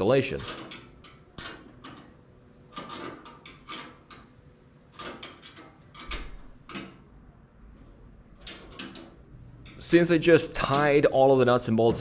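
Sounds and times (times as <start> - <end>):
metallic clicks and knocks: 0.3 - 4.3, 4.9 - 7.0, 8.4 - 9.9, 10.6 - 11.0.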